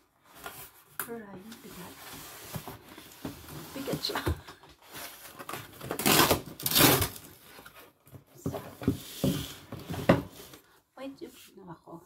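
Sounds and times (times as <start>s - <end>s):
box scraping and knocking: 8.2s - 10.6s.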